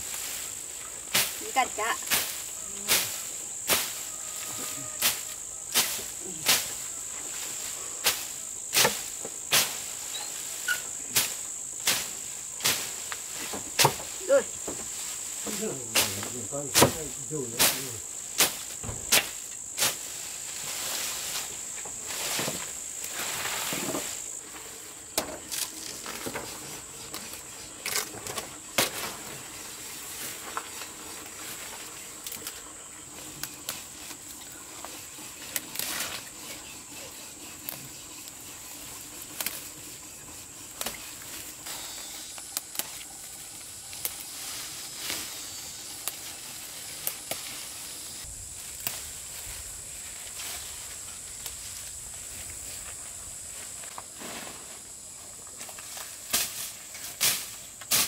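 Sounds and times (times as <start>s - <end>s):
insects chirping: 0.0s - 58.0s
machete chopping through grass: 1.1s - 1.4s, 2.0s - 4.0s, 5.0s - 6.8s, 8.0s - 9.9s, 11.1s - 14.1s, 16.0s - 20.1s, 56.0s - 58.0s.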